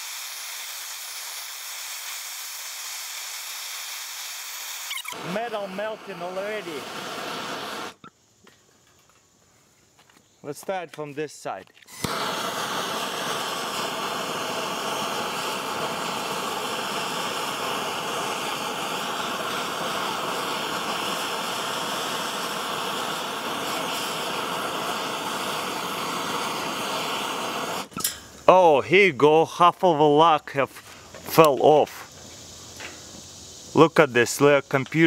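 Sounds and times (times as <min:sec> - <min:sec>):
blowtorch flame hissing: 0:00.0 - 0:08.0, 0:11.9 - 0:28.1, 0:30.8 - 0:35.0.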